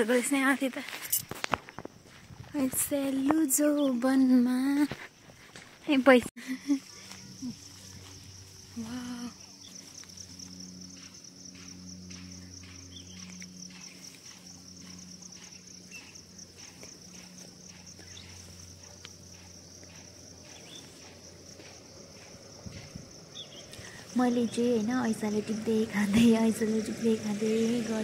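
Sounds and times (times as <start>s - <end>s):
high-pitched insect chirring: 6.7s - 28.0s.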